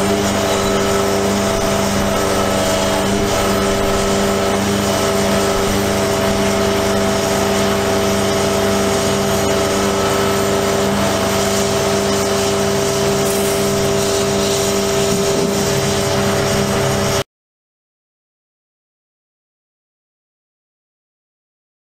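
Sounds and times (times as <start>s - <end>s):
truck engine droning: 0.0s - 17.2s.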